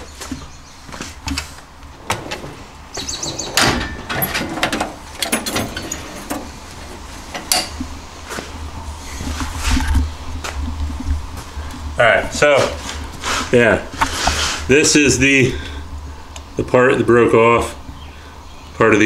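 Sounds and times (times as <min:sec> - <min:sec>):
metal tools knocking and clanking: 0:03.6 - 0:06.5.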